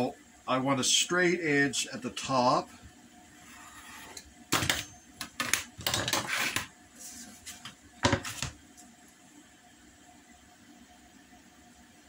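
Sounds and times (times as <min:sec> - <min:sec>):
cutting board sliding across mat: 0:03.4 - 0:04.3
tools knocking on workbench: 0:08.0 - 0:08.5.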